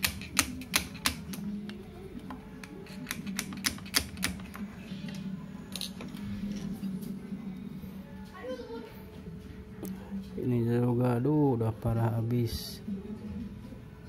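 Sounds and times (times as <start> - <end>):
metal clicks and taps: 0.0 - 5.2
steady low hum: 0.0 - 14.0.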